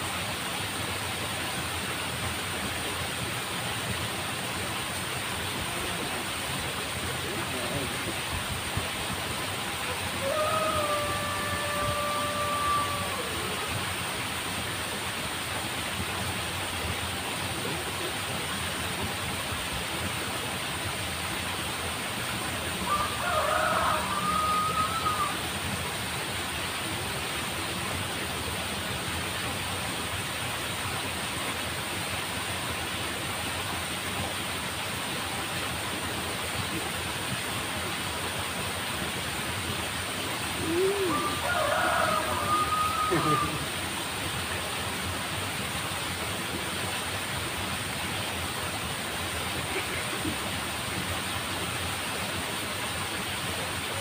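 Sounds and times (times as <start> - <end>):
rooster crowing: 9.9 - 13.9, 22.8 - 25.4, 40.6 - 43.7.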